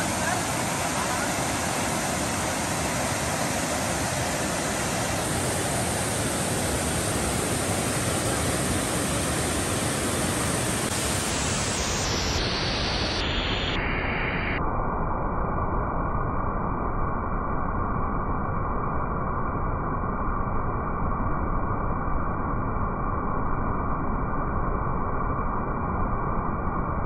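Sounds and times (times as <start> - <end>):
waterfall rushing over rocks: 0.0 - 13.8.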